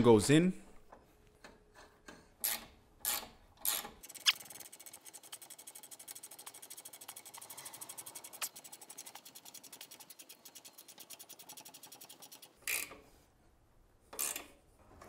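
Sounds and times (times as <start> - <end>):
ratchet wrench clicking: 2.4 - 12.9.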